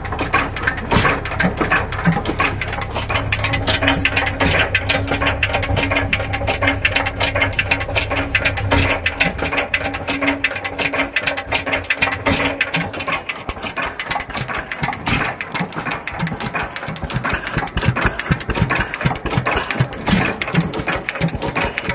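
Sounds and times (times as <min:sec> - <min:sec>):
low steady hum: 0:00.0 - 0:16.1
stationary engine clattering: 0:00.0 - 0:21.9.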